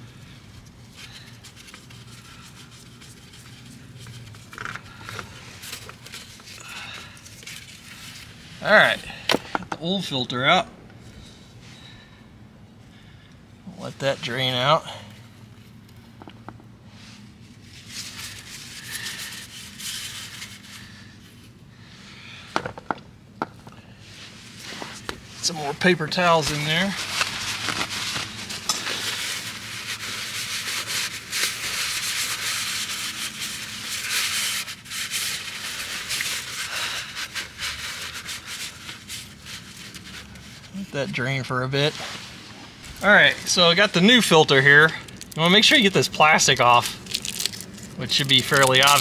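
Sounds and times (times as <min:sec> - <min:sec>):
faint steady hum: 0:00.0 - 0:49.0
paper towels rustling: 0:17.0 - 0:21.0, 0:24.0 - 0:49.0.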